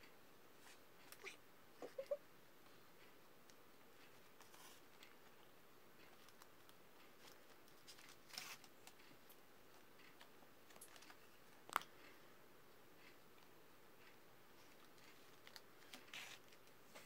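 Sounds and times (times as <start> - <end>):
paper pages rustling: 7.2 - 9.0, 14.7 - 17.0.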